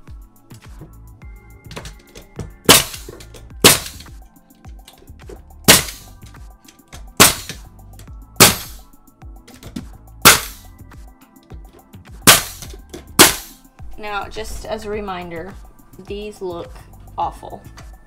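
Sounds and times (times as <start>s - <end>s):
nail gun firing into wood: 2.6s - 4.1s, 5.7s - 6.1s, 7.2s - 7.6s, 8.4s - 8.8s, 10.2s - 10.6s, 12.2s - 13.6s.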